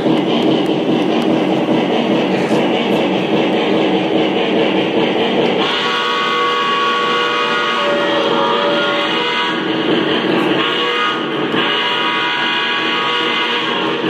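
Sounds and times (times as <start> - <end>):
model train running on track: 0.0 - 14.0
steam whistle: 5.6 - 9.7, 10.5 - 14.0.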